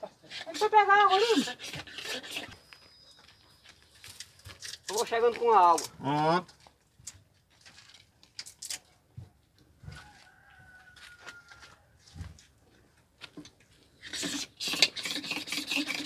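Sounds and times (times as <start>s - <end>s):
rooster crowing: 9.8s - 12.2s.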